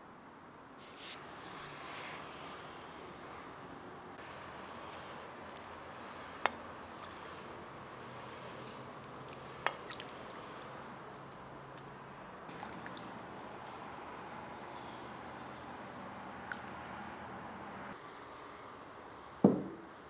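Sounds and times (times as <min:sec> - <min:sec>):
broth pouring and sloshing: 0:06.9 - 0:17.8.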